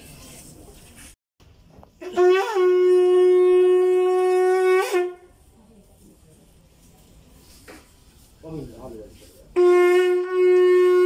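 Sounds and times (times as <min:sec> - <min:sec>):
conch shell blown: 0:02.0 - 0:05.4, 0:09.5 - 0:11.0.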